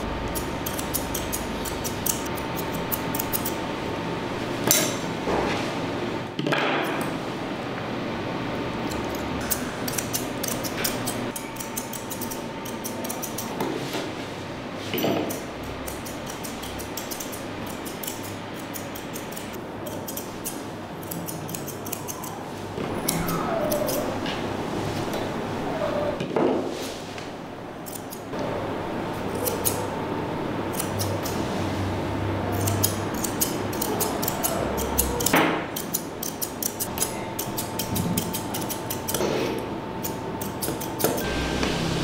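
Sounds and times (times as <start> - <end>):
shears snipping hair: 0.3 - 3.6, 8.9 - 13.6, 15.2 - 22.4, 23.0 - 24.1, 27.8 - 28.3, 29.1 - 29.9, 30.7 - 31.4, 32.5 - 41.7.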